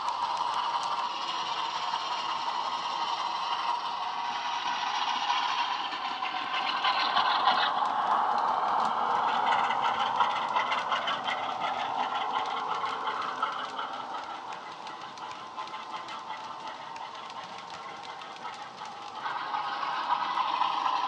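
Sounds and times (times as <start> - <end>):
diesel locomotive engine through small speaker: 0.0 - 21.0
model train wheels clattering on track: 0.0 - 21.0.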